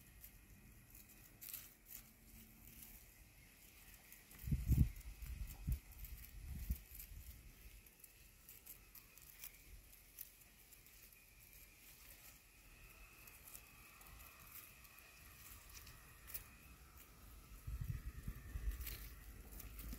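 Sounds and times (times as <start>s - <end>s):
dry weed stalk rustling: 0.0s - 19.9s.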